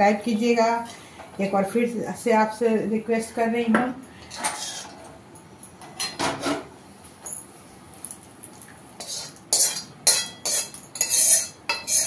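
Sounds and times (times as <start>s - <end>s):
spoon scraping metal pot: 4.3s - 5.0s, 9.0s - 12.0s.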